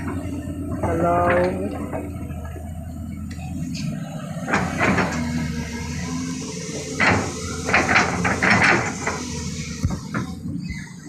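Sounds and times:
excavator diesel engine running: 0.0 - 11.0
metallic clanks and knocks: 7.0 - 9.2.

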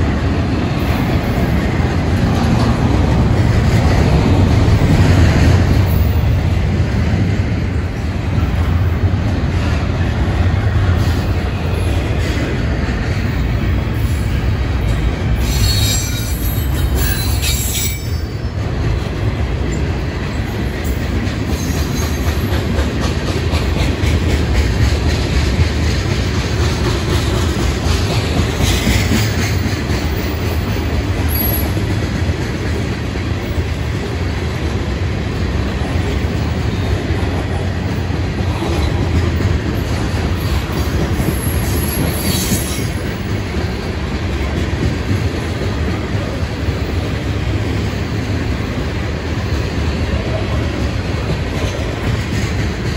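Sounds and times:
train wheels rumbling on rails: 0.0 - 52.9
wheel squeals: 15.4 - 18.4.

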